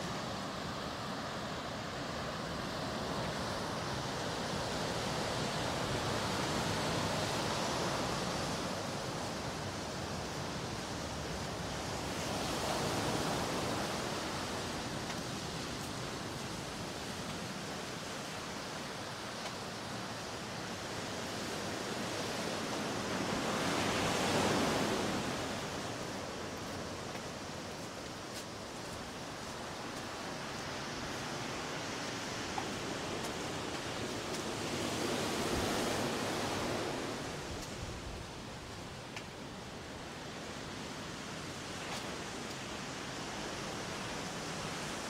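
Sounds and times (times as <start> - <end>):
ocean surf washing ashore: 0.0 - 45.0.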